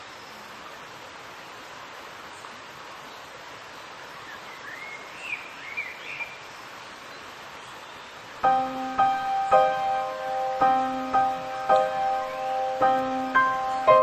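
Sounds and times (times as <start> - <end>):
outdoor background hiss: 0.0 - 14.0
bird chirps: 8.6 - 14.0.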